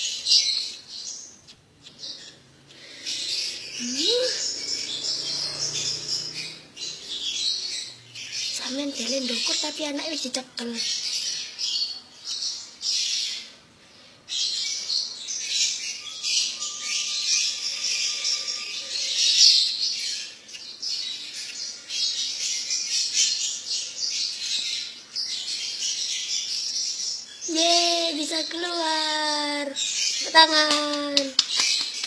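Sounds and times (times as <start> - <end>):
small caged birds chirping: 0.0 - 32.0.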